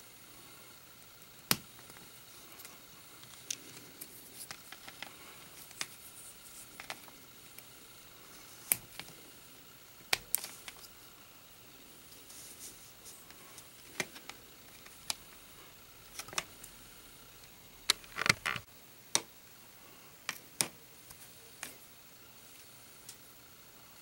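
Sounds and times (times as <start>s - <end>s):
plastic parts clicking together: 16.2s - 16.6s, 17.8s - 19.2s.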